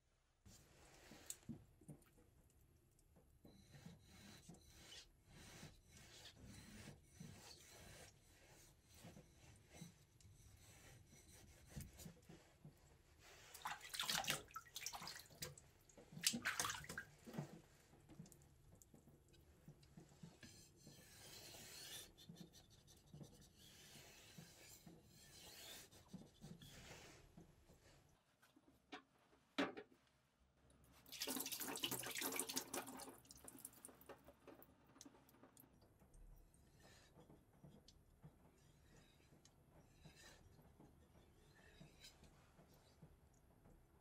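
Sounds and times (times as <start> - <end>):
knife scraping on whetstone: 3.6 - 12.0, 20.4 - 26.9.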